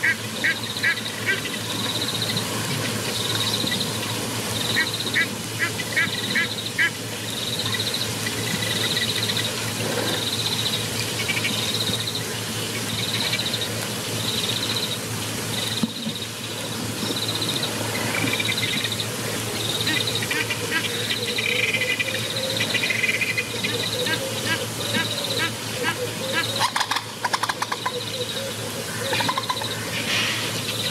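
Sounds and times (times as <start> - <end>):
birds chirping: 0.0 - 30.9
steady low hum: 0.0 - 30.9.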